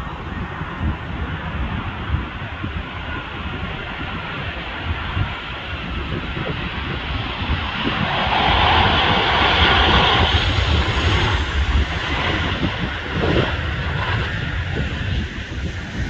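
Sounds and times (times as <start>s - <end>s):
wind rumbling on microphone: 0.0s - 16.0s
jet engines rushing whine: 3.8s - 16.0s.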